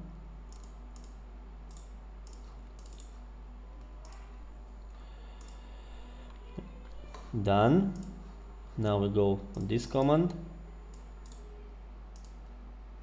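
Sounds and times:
computer mouse and keyboard clicks: 0.5 - 3.2.

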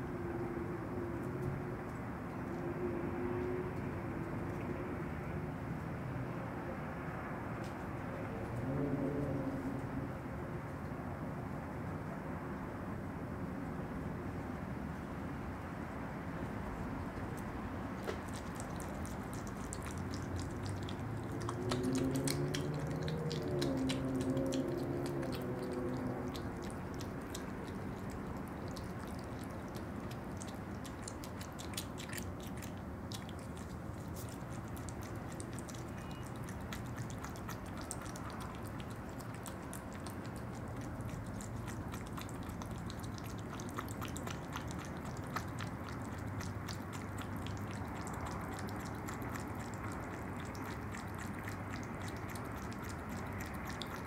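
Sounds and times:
animal eating wet smacks: 16.4 - 54.0.

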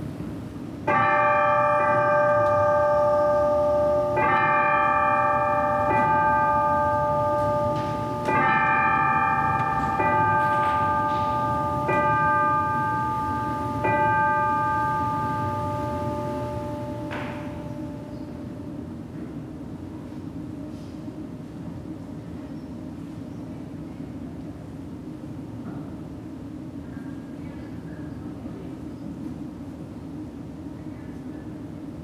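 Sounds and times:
bells ringing: 0.9 - 18.9.

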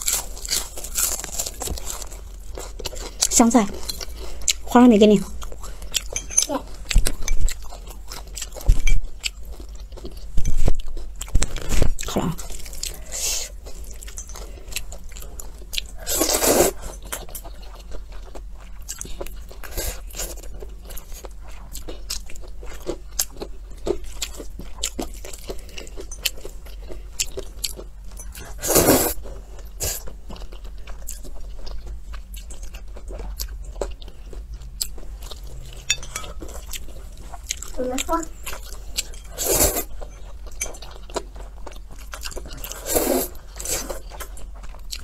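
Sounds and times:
chewing and crunching: 0.0 - 45.0
noodles being slurped: 28.5 - 29.2, 39.3 - 39.9, 42.5 - 44.1.

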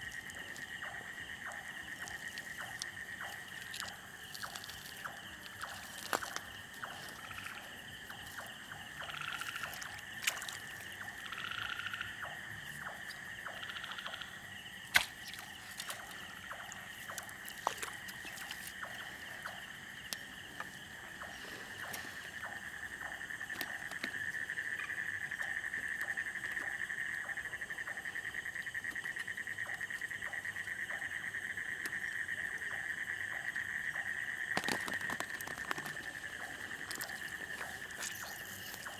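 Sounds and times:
footsteps wading through water: 0.0 - 14.1, 14.7 - 24.3, 34.5 - 38.9.

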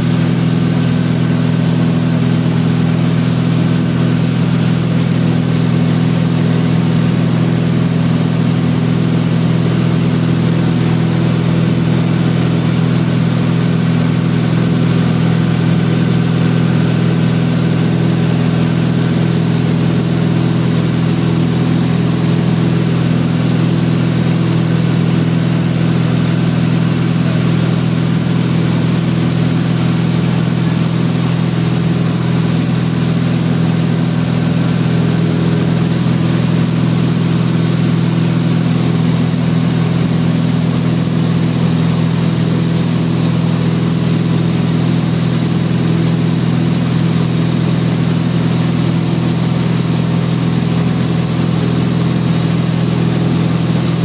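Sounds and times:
light aircraft engine droning: 0.0 - 54.0.

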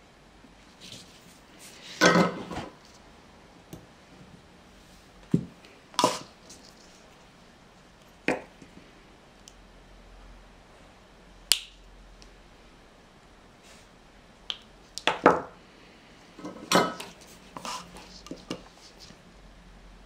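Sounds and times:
tools clattering on workbench: 2.0 - 2.7, 16.4 - 17.2.

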